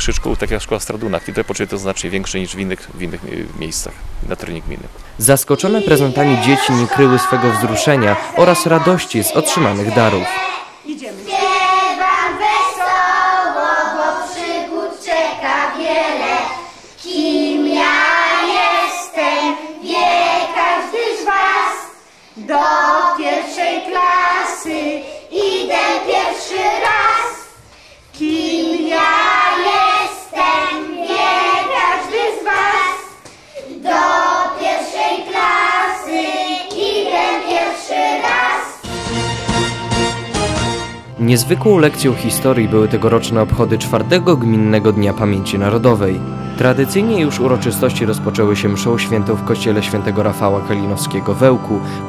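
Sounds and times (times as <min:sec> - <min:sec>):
children singing in unison: 0:05.6 - 0:27.6, 0:28.2 - 0:38.9.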